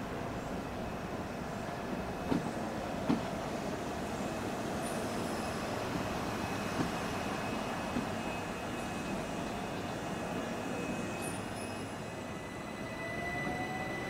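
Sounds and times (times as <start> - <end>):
electric train rumble: 0.0 - 14.0.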